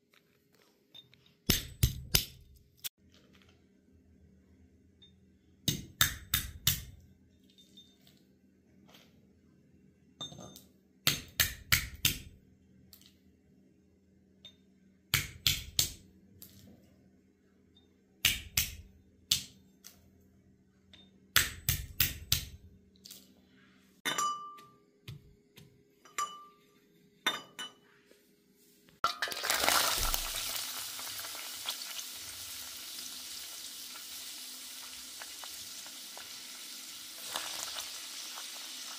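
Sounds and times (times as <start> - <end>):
onions sizzling in oil: 29.2 - 38.9.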